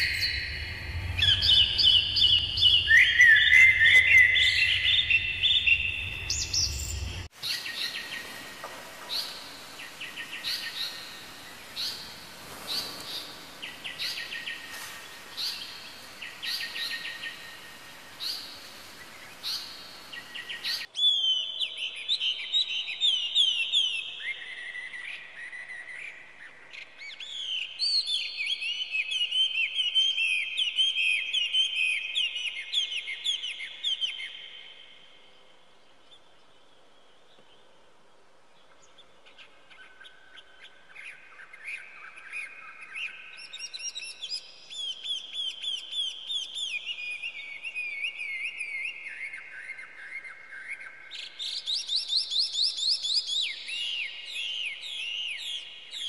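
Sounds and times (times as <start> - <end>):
low hum: 0.0 - 7.3
small birds chirping: 0.0 - 37.8
fast varied birdsong: 0.0 - 56.0.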